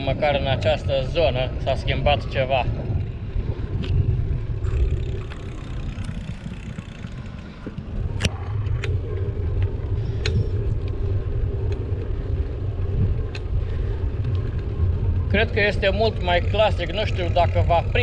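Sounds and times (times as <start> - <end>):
bicycle tyre noise: 0.0 - 18.0
wind rumble on microphone: 0.0 - 18.0.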